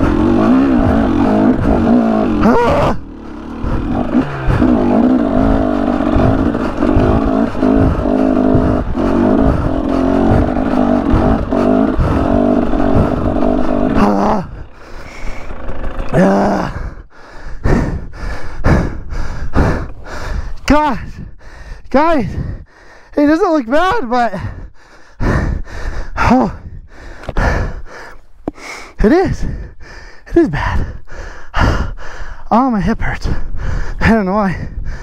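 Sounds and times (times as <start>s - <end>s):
dirt bike engine pulling hard: 0.0s - 22.6s
heavy breathing: 0.0s - 23.3s, 24.3s - 32.5s, 33.2s - 35.0s.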